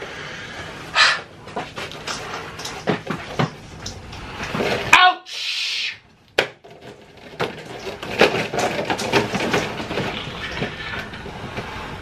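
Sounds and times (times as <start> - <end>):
cardboard boxes crinkling: 6.6 - 12.0.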